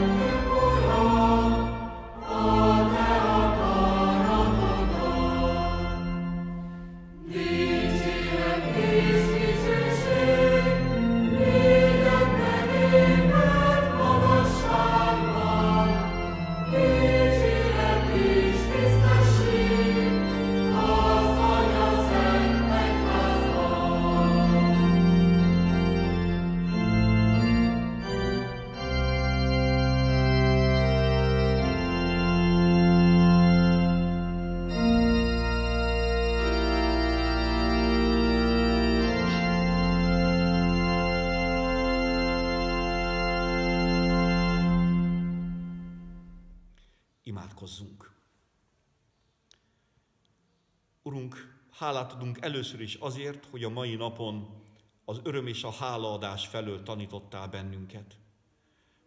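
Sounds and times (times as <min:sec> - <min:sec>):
congregation singing a hymn: 0:00.0 - 0:29.0
organ accompaniment: 0:00.0 - 0:47.6.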